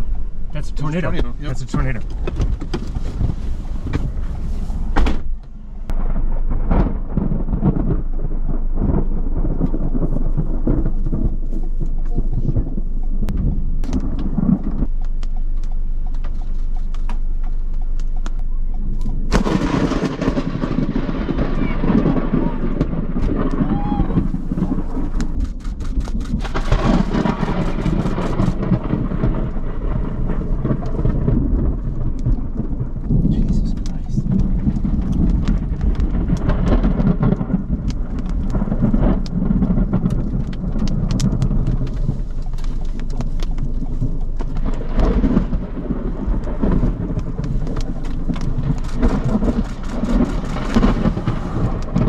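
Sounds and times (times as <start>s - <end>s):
thunder rumble: 0.0s - 52.0s
raindrops tapping on car: 0.5s - 4.1s, 26.5s - 52.0s.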